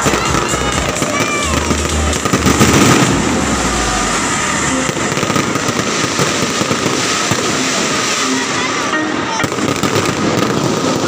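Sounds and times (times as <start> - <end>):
deep fireworks rumble: 0.0 - 8.5
fireworks crackling: 0.0 - 11.0.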